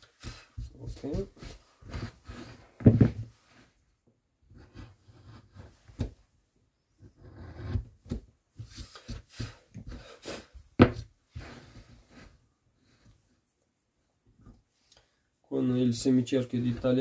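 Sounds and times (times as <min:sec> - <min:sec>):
carving gouge scraping wood: 0:07.0 - 0:07.9.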